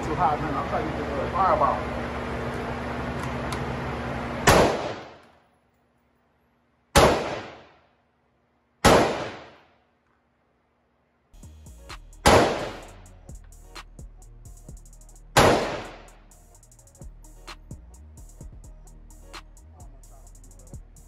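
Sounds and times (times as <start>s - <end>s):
gunshots echoing indoors: 4.4s - 5.2s, 6.9s - 7.8s, 8.8s - 9.6s, 12.3s - 12.8s, 15.4s - 16.0s.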